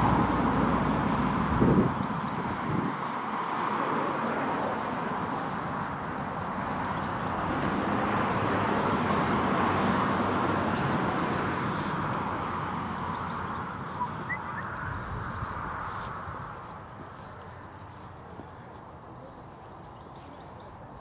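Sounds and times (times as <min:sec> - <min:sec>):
passing vehicle rushing: 0:00.0 - 0:16.8
bird chirps: 0:13.0 - 0:15.3.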